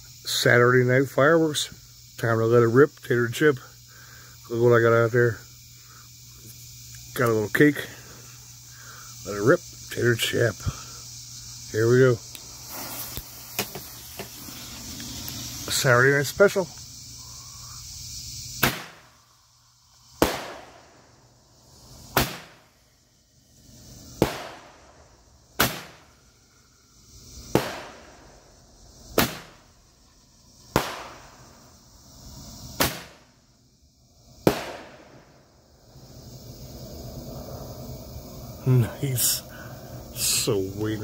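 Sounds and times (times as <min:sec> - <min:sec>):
firework hissing: 0:05.7 - 0:41.0
firework bangs: 0:12.4 - 0:15.8, 0:18.6 - 0:19.2, 0:20.1 - 0:22.8, 0:24.0 - 0:26.2, 0:27.4 - 0:28.5, 0:29.1 - 0:29.7, 0:30.6 - 0:31.6, 0:32.7 - 0:33.4, 0:34.4 - 0:35.5.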